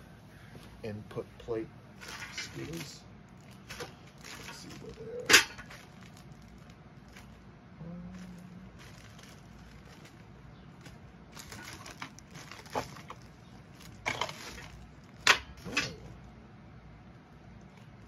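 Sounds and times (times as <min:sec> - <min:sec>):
hands rummaging through parts: 0:02.0 - 0:07.4, 0:08.1 - 0:16.2.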